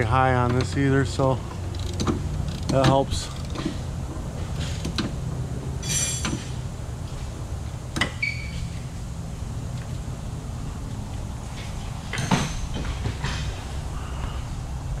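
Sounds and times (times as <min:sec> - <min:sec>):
repair shop hum: 0:00.0 - 0:15.0
metal clink: 0:05.8 - 0:06.5
brief high squeak: 0:08.0 - 0:08.8.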